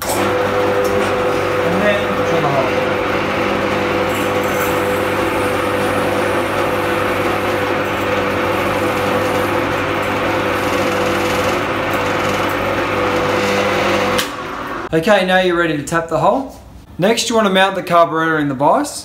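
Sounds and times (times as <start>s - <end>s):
drill press motor humming: 0.0s - 14.9s
drill bit drilling aluminium: 1.6s - 14.9s.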